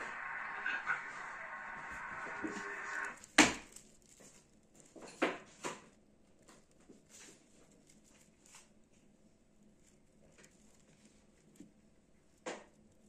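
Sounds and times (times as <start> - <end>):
wicker basket knocks and crackles: 3.2 - 8.7.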